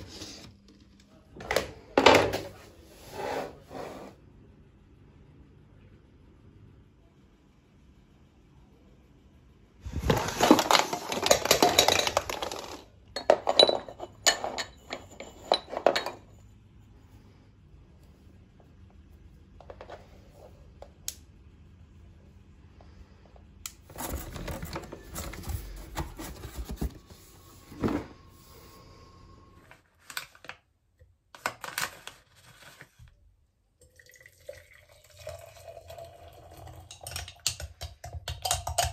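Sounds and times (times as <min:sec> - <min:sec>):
objects clattering and clinking: 0:09.9 - 0:16.5, 0:23.9 - 0:27.1.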